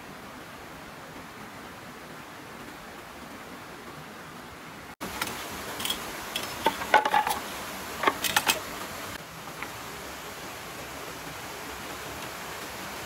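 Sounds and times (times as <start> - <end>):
stream rushing: 0.0 - 13.0
bamboo poles clacking: 5.0 - 8.8.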